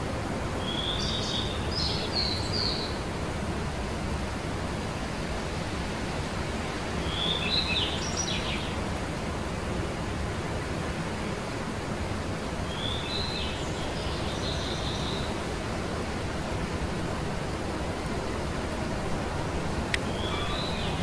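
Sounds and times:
outdoor background hiss: 0.0 - 21.0
songbirds chirping: 0.6 - 3.1, 7.0 - 8.8, 12.7 - 15.5, 19.8 - 21.0.

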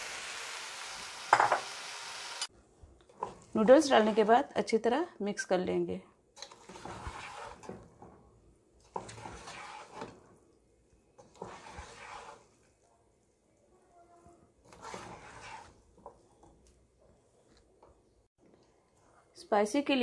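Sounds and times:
spatula scraping swishes in pot: 3.1 - 4.5, 6.4 - 13.1, 14.2 - 18.0, 18.9 - 19.4.

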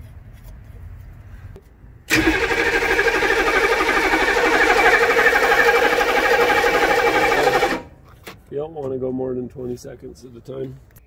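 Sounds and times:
engine starter cranking: 2.1 - 8.0.

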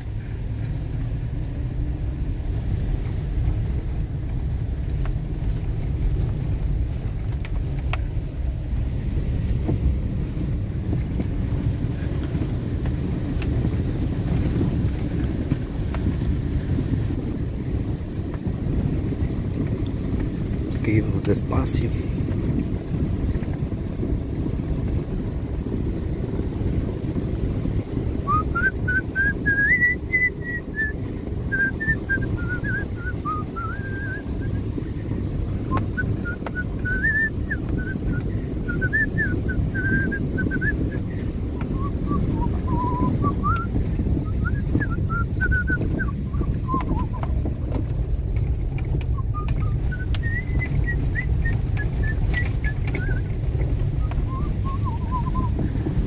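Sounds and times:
vehicle rumble on road: 0.0 - 56.0
person whistling a tune: 28.2 - 34.6, 35.7 - 41.0, 41.6 - 47.2, 49.1 - 53.2, 54.1 - 55.6.

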